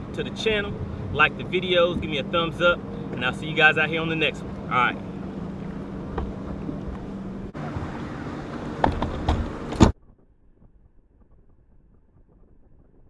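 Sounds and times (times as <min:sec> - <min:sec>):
steady low hum: 0:00.0 - 0:10.0
wind buffeting microphone: 0:00.0 - 0:13.0.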